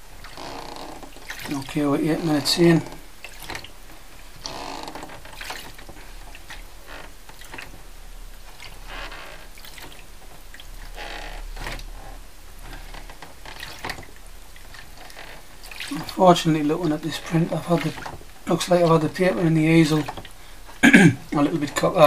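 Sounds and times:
liquid sloshing in a tray: 0.2s - 11.9s, 12.6s - 22.0s.

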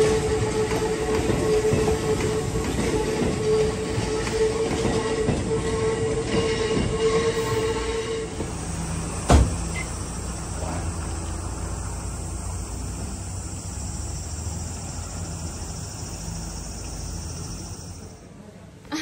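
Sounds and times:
train wheels squealing on rails: 0.0s - 18.4s
insect buzz: 8.5s - 18.2s.

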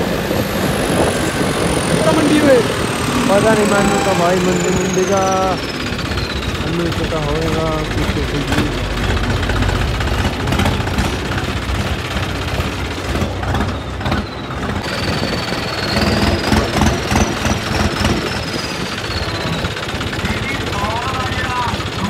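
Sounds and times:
tractor engine running: 0.0s - 22.0s
machine rattles: 0.4s - 22.0s
thin high tone: 1.0s - 9.7s.

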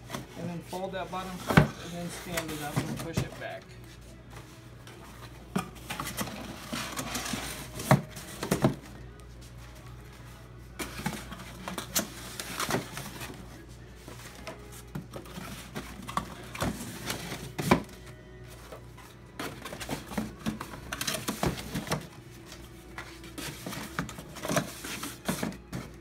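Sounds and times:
cardboard scraping and rustling: 5.2s - 8.8s.

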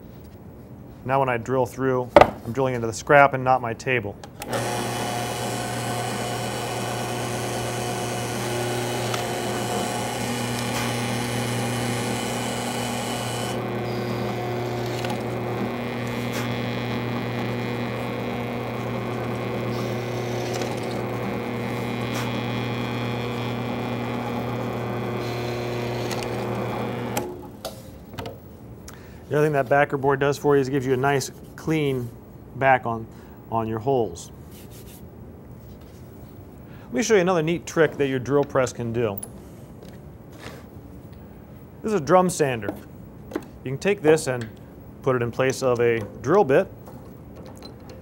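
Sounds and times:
drill bit boring wood: 4.4s - 27.4s
drill press motor hum: 4.4s - 27.6s.

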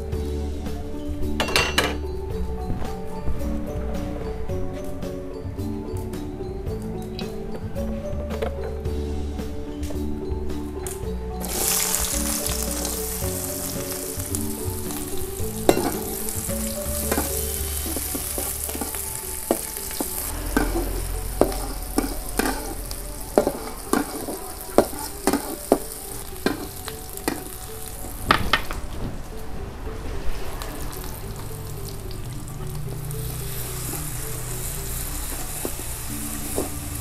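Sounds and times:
metal spatula scraping wok: 11.4s - 27.9s
shallots sizzling in oil: 11.4s - 28.4s, 30.8s - 37.0s.

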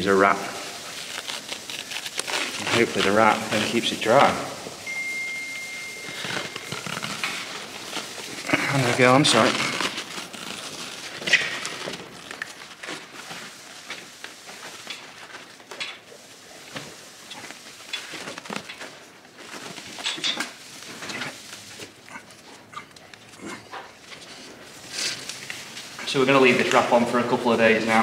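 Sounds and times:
bandage wrap crackling and rustling: 0.0s - 28.0s.

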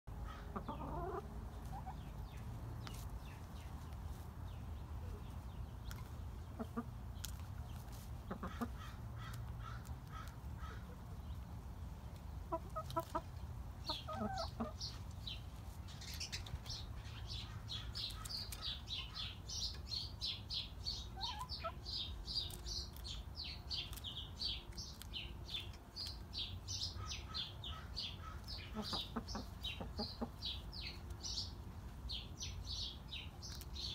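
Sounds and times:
hens clucking: 0.1s - 3.9s, 5.0s - 11.2s, 12.1s - 15.4s, 21.0s - 23.1s, 27.0s - 31.2s.

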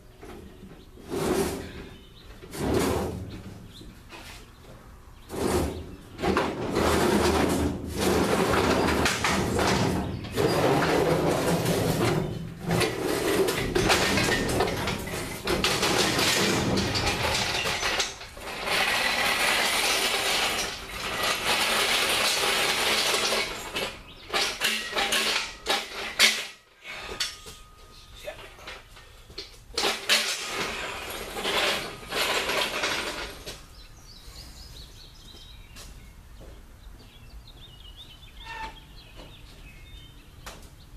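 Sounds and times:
engine hoist rolling on casters: 5.2s - 33.9s.

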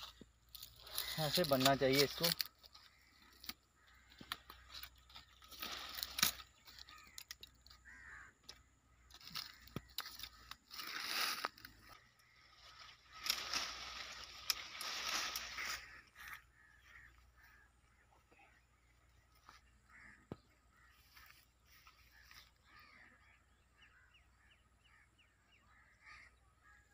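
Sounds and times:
leafy branches rustling: 0.0s - 8.1s, 9.1s - 17.6s.

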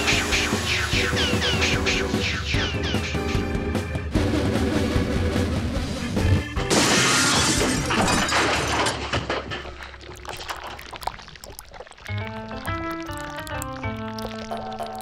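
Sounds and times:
cartoon background music: 0.0s - 8.0s, 12.1s - 15.0s.

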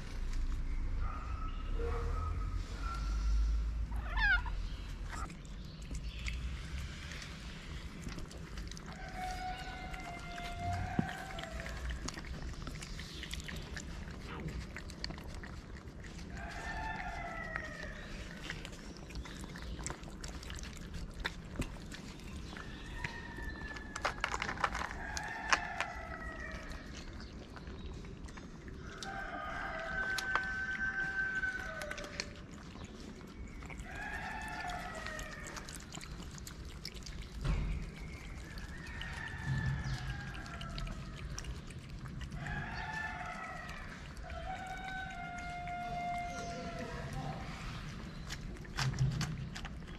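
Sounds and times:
cats chewing wet food: 2.7s - 49.9s
drawn-out animal call: 42.3s - 47.4s.

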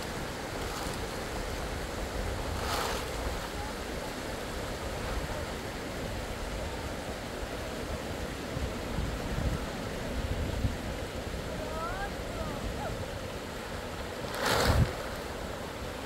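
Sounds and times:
wind gusts buffeting microphone: 0.0s - 16.0s
storm wind rushing: 14.2s - 15.5s.

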